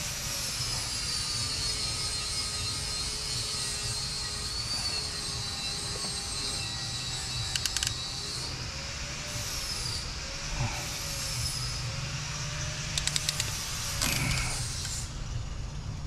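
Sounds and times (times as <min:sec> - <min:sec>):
faint high whines: 0:00.0 - 0:16.0
shop hiss and hum: 0:00.0 - 0:16.0
crimping tool clicking: 0:13.0 - 0:14.6.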